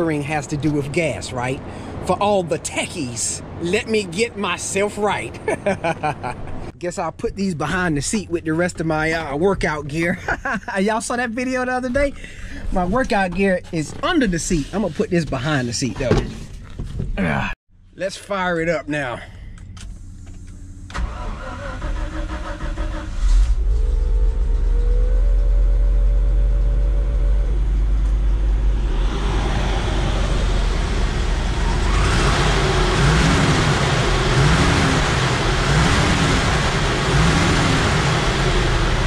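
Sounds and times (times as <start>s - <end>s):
engine starter cranking: 20.9s - 23.7s
truck engine running: 23.6s - 39.0s
rushing noise: 27.2s - 39.0s.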